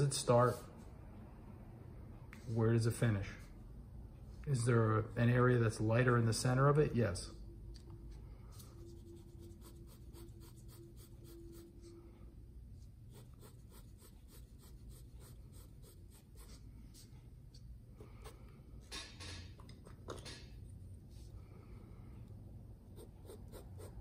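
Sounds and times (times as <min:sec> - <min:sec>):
pencil scratching on paper: 0:08.8 - 0:12.0, 0:13.1 - 0:17.1, 0:22.9 - 0:24.0.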